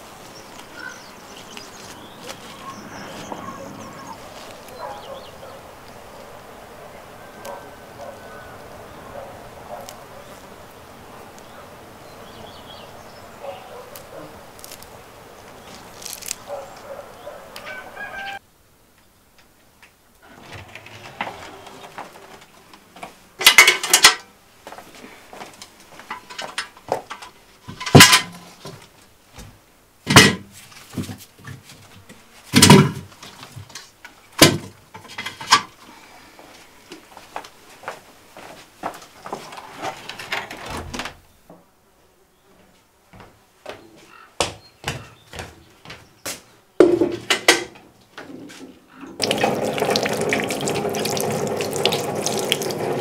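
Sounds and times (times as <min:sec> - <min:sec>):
handling noises: 0:00.0 - 0:06.4, 0:20.2 - 0:35.8.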